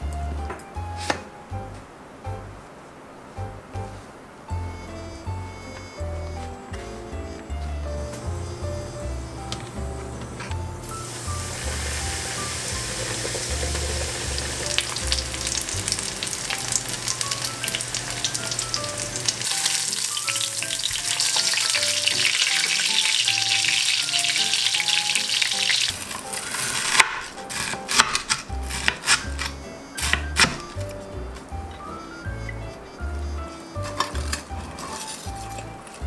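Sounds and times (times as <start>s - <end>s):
cutlet deep-frying in oil: 10.9s - 29.5s
knife crunching through fried crust: 25.9s - 31.0s, 33.4s - 36.0s.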